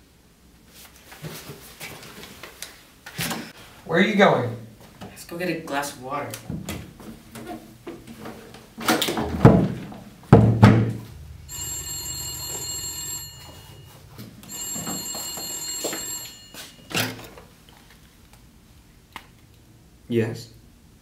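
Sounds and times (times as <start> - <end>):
door thumping shut: 9.1 - 11.5
telephone bell ringing: 11.5 - 17.2.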